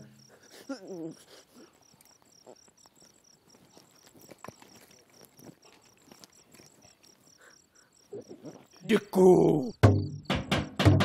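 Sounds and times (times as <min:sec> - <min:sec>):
crickets chirping: 0:00.0 - 0:11.0
soft clicks and rustles: 0:01.8 - 0:07.3.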